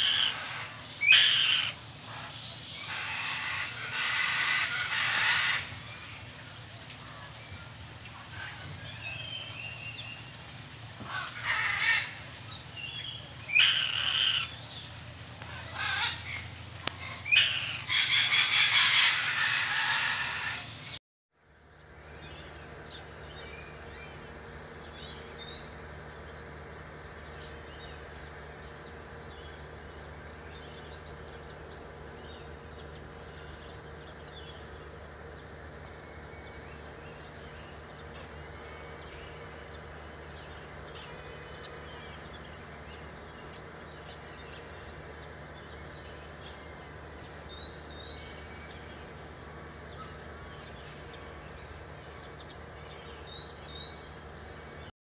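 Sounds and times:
insects chirping: 0.0s - 54.9s
low steady hum: 20.8s - 54.9s.

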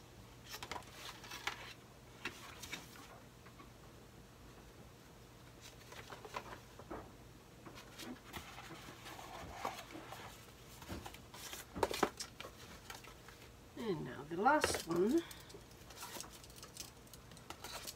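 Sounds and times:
paper and cardboard rustling: 0.4s - 3.2s, 5.5s - 6.9s, 7.7s - 13.6s, 15.8s - 17.9s.

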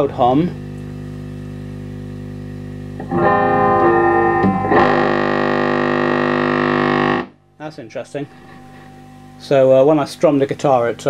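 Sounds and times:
amp loud steady held tone: 0.0s - 11.0s
guitar amp humming: 0.0s - 11.0s
electric guitar strummed: 2.8s - 10.1s.

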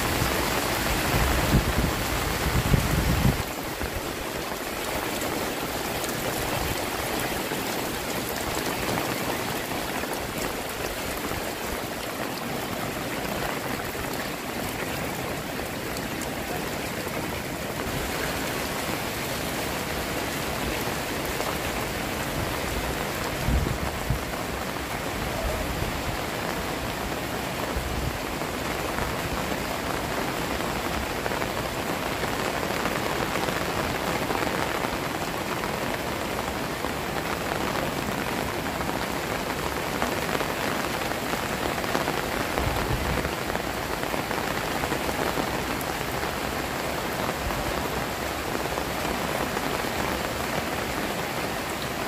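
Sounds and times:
heavy rain on water: 0.0s - 52.0s.

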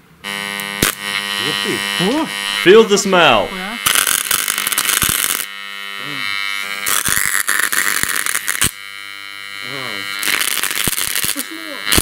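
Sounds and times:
transformer buzzing: 0.2s - 12.0s
electrical arcing crackling and snapping: 0.3s - 12.0s.

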